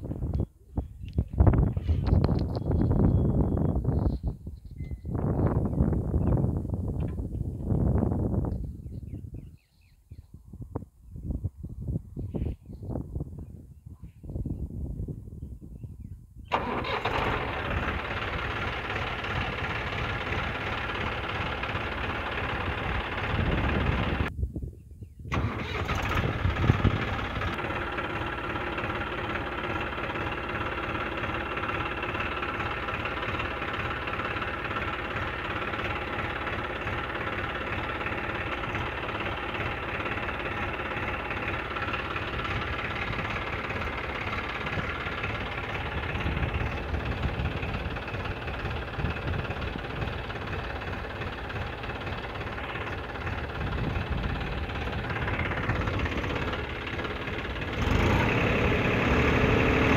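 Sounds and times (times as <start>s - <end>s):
diesel tractor engine running: 16.5s - 24.3s, 25.3s - 59.9s.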